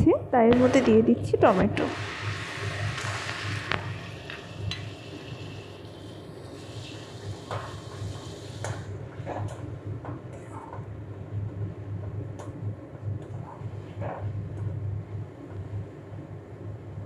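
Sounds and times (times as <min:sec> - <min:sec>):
steady low hum: 0:00.0 - 0:17.0
hot oil sizzling: 0:01.8 - 0:09.0.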